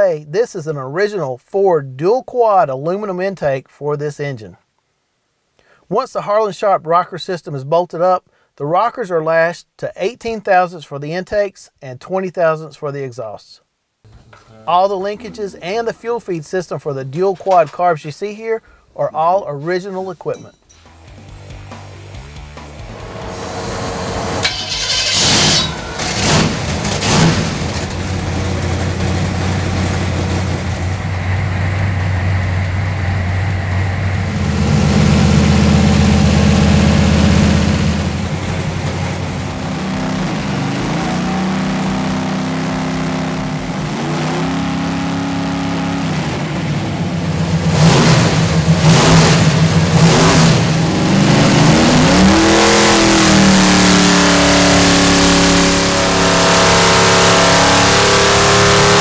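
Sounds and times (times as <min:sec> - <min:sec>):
engine idling and revving: 0:21.1 - 0:59.0.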